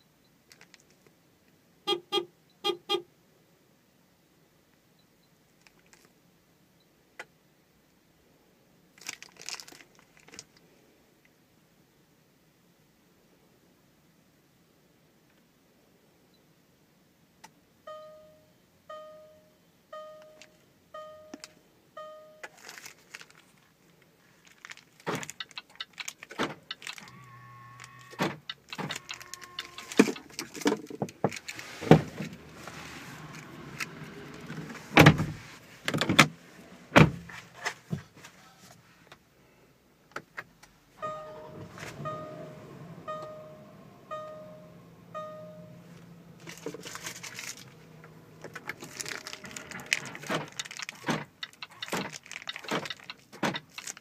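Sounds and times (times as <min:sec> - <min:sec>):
car warning chime: 0:17.9 - 0:22.6, 0:41.0 - 0:46.4.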